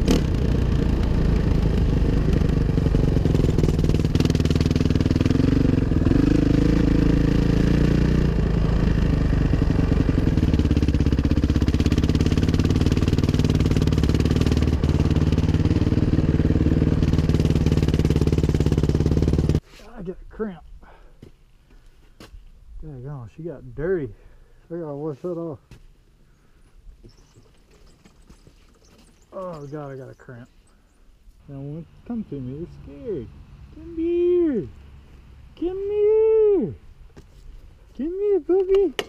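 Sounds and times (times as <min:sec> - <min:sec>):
dirt bike engine revving: 0:00.0 - 0:19.6, 0:32.0 - 0:35.0.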